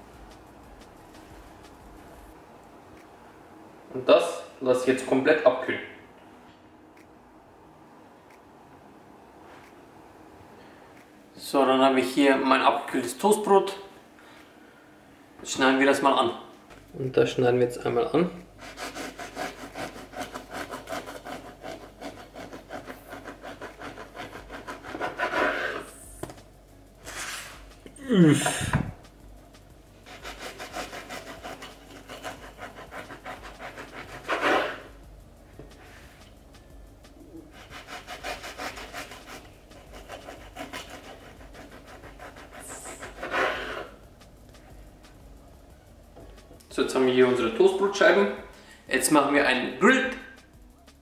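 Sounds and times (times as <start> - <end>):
knife sawing through bread: 18.6 - 25.9, 30.1 - 34.9, 37.5 - 44.0.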